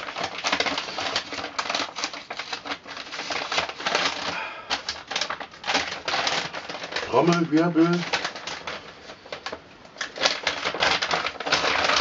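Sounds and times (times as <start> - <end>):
paper bag rustling and crinkling: 0.0 - 12.0.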